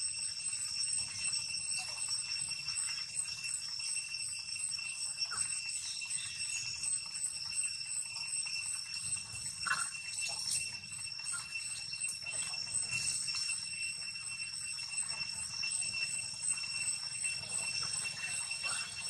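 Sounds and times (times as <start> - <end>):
high-pitched insect drone: 0.0 - 19.0
faint squeaky chirps: 14.9 - 19.0.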